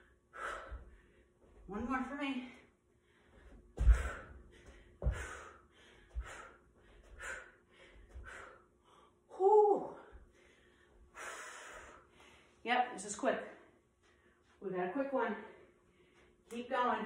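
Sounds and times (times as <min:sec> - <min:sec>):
woman breathing hard and gasping: 0:00.0 - 0:01.4, 0:02.9 - 0:09.3, 0:09.9 - 0:12.6
bare feet thudding on floor: 0:03.6 - 0:07.3.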